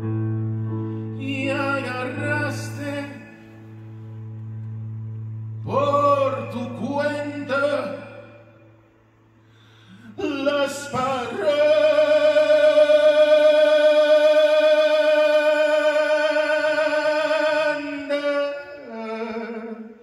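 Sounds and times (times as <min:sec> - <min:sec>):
person singing with vibrato: 0:05.6 - 0:08.7, 0:09.9 - 0:20.0.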